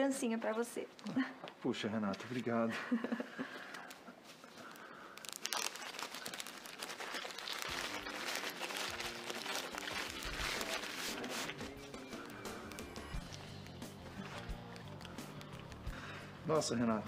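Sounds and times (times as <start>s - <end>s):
gift wrapping crinkling: 3.4s - 16.2s.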